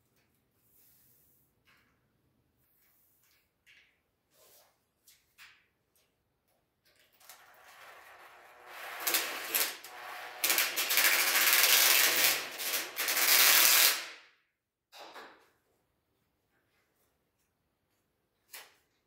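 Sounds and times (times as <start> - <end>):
drill driving screw: 8.8 - 14.1.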